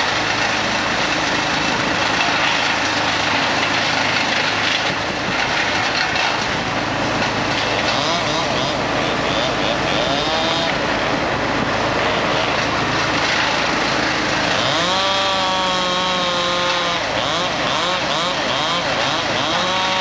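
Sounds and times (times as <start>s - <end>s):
idling engine drone: 0.0s - 20.0s
chainsaw revving: 6.4s - 20.0s.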